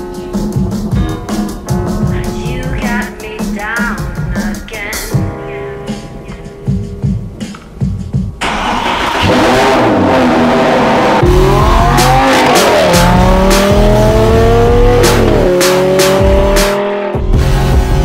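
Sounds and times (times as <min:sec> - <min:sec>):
sports car engine accelerating hard: 0:08.4 - 0:18.0.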